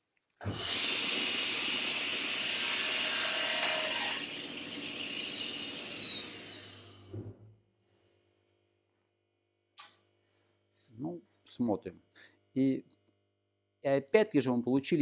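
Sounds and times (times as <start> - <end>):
saw blade high whine: 0.5 - 7.1
table saw cutting wood: 0.5 - 7.1.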